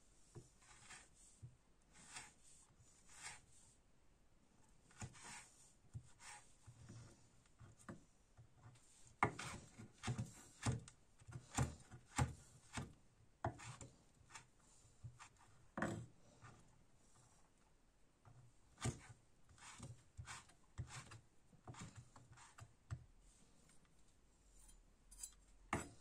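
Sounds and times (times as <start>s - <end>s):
knife chopping on wooden board: 9.2s - 12.9s.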